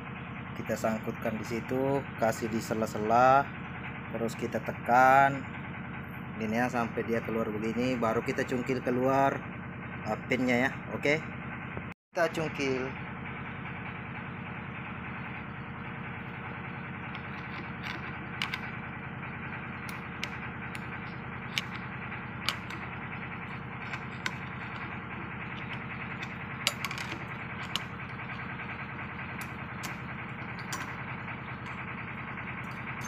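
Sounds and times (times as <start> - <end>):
engine drone: 0.0 - 33.0
metal pry bar clinks: 25.6 - 27.8.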